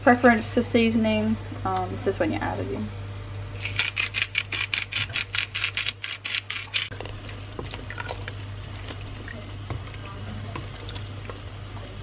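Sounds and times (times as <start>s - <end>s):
wooden spoon knocking a pot: 9.6s - 10.8s.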